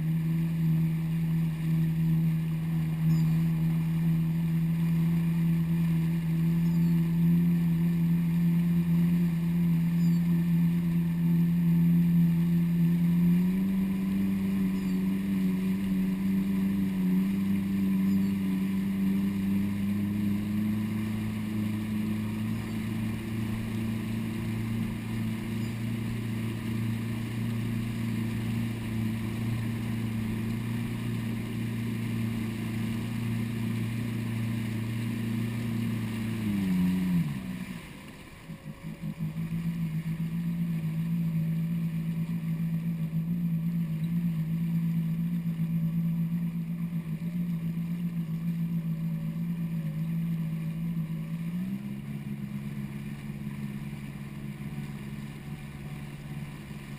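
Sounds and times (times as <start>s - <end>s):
jet ski engine running: 0.0s - 56.9s
water spray rushing: 12.6s - 42.0s.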